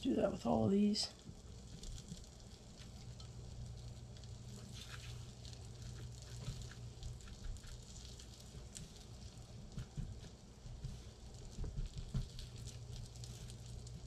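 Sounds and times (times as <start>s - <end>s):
steady low hum: 0.0s - 14.0s
rustling of fish in breading: 1.2s - 14.0s
fish sizzling in butter: 1.3s - 9.5s.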